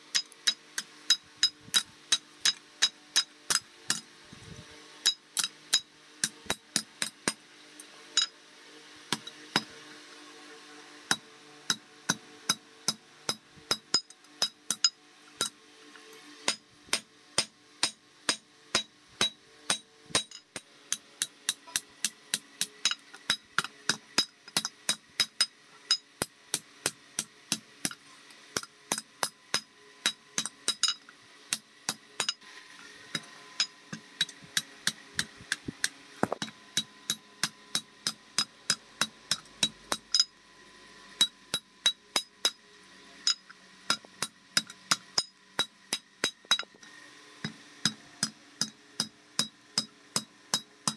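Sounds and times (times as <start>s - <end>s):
hammer striking metal on anvil: 0.1s - 4.1s, 5.0s - 7.4s, 16.5s - 28.0s, 28.6s - 32.4s, 36.2s - 40.3s, 41.2s - 42.6s, 43.2s - 46.7s, 47.4s - 50.9s.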